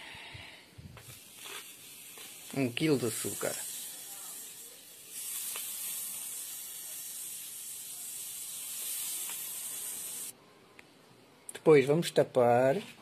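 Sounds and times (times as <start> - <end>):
sugar pouring hiss: 0.1 - 10.3.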